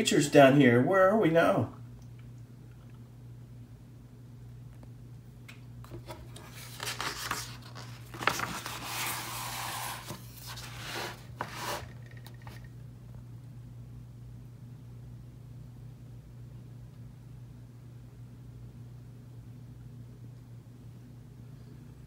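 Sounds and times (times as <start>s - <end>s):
book pages turning: 5.8s - 12.6s
page snapping: 5.9s - 9.2s.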